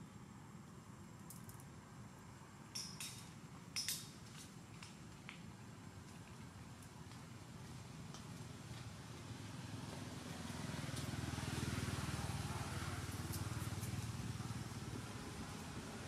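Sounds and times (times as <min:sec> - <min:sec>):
vehicle engine passing by: 0:08.5 - 0:16.0.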